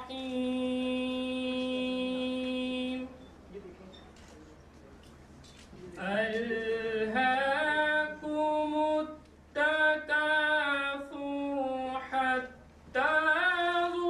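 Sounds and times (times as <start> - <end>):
man chanting melodically: 6.0 - 14.0.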